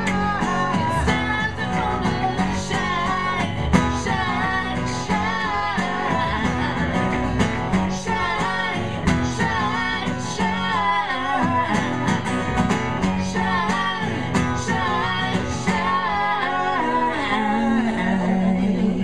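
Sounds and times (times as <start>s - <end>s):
acoustic guitar: 0.0s - 19.0s
upright bass: 0.0s - 19.0s
woman singing lead vocal: 0.0s - 19.0s
man singing harmony: 14.8s - 19.0s.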